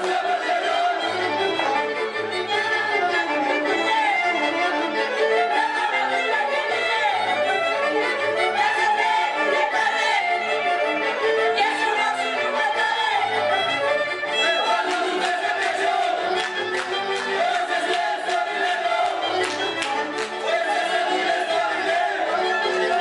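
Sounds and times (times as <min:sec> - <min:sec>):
fiddle dance tune: 0:00.0 - 0:23.0
steady accompaniment: 0:00.0 - 0:23.0.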